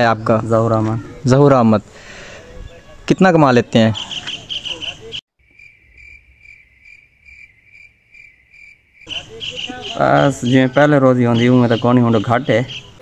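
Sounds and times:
cricket chirping: 0:04.0 - 0:13.0.

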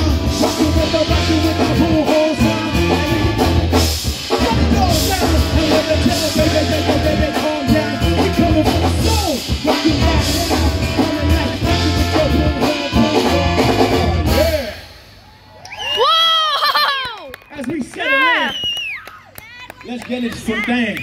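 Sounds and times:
brass band playing: 0:00.0 - 0:15.2.

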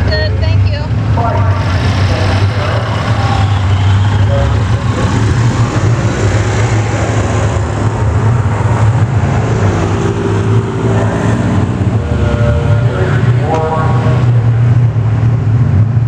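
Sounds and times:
vehicle engine droning: 0:00.0 - 0:16.0.

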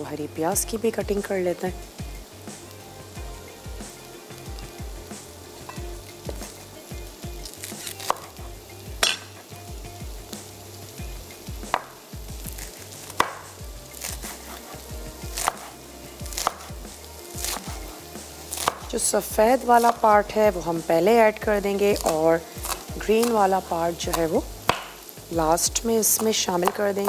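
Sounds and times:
pan sizzling: 0:00.0 - 0:27.0
knife chopping on board: 0:07.7 - 0:08.3, 0:11.7 - 0:11.9, 0:12.6 - 0:15.7, 0:16.3 - 0:16.7, 0:17.4 - 0:18.9, 0:24.1 - 0:25.0, 0:26.2 - 0:26.9.

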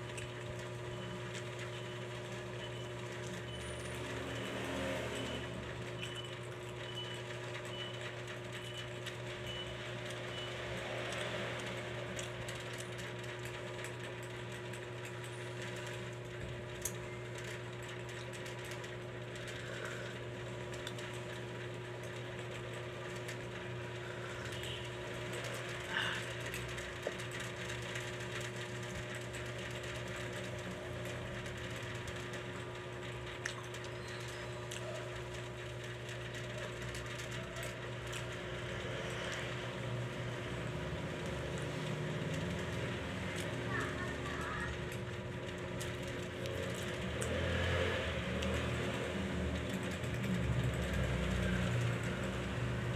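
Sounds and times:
low machine hum: 0:00.0 - 0:52.9
soft eating noises: 0:11.0 - 0:52.9.

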